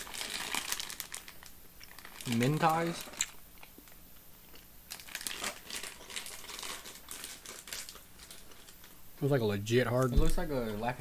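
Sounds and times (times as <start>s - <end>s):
plastic packet crinkling: 0.0s - 3.7s, 4.9s - 9.0s.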